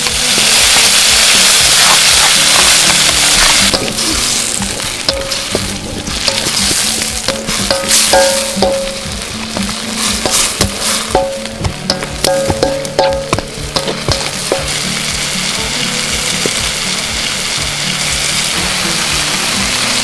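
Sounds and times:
food sizzling in hot oil: 0.0 - 20.0
spatula scraping a wok: 0.3 - 14.8.

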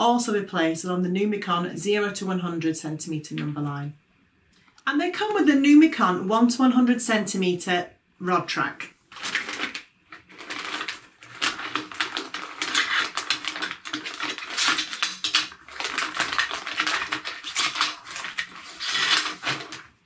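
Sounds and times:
plastic bag crinkling: 9.0 - 20.0
plastic pieces clattering: 9.1 - 20.0.

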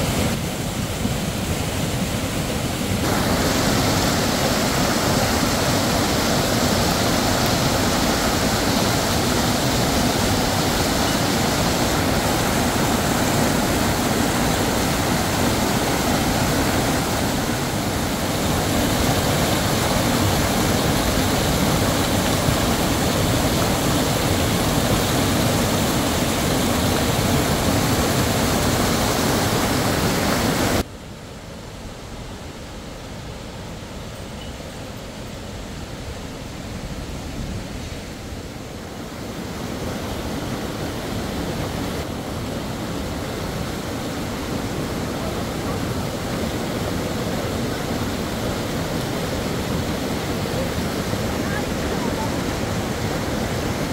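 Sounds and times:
stream rushing over rocks: 0.0 - 53.9
quiet outdoor background: 30.8 - 40.9.

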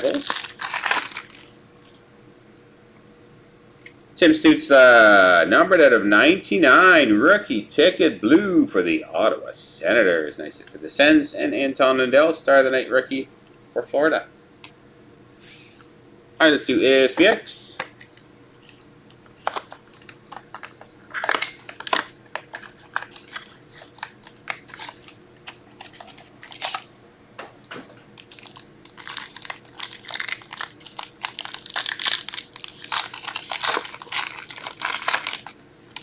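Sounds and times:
plastic wrap crinkling and tearing: 0.0 - 1.6, 19.4 - 26.9, 28.2 - 36.0.

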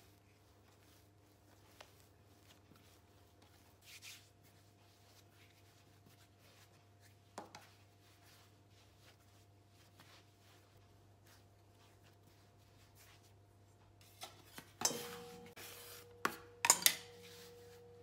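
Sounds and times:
hands kneading dough: 0.0 - 18.0
low steady hum: 7.6 - 18.0.

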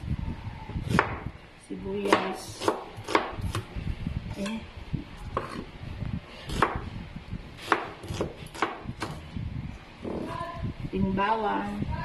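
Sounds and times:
knife slicing onion on board: 2.0 - 3.7, 5.3 - 5.7, 6.5 - 6.8, 7.6 - 9.2.

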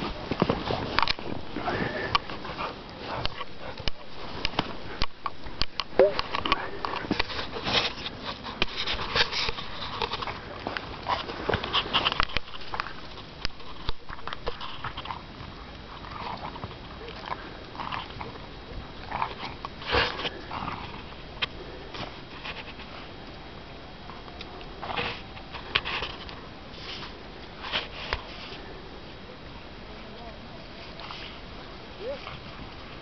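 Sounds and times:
crunching and rustling in snow: 0.0 - 23.2
dogs snuffling: 0.0 - 23.4.

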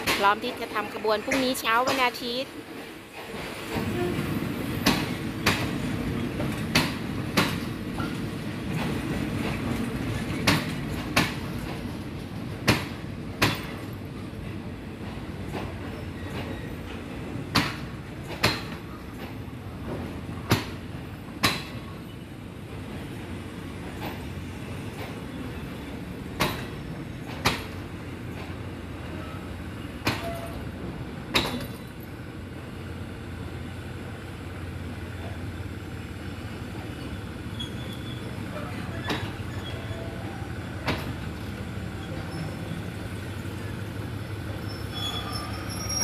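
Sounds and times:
wheels clacking over rail joints: 0.0 - 32.2, 36.6 - 46.0
train coaches rumbling: 0.0 - 46.0.

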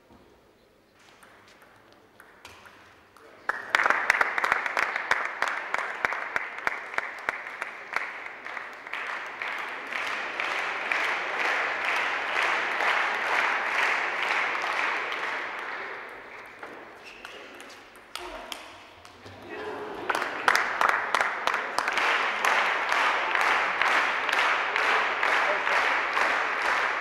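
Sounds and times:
audience applauding: 3.4 - 16.6, 19.4 - 27.0.

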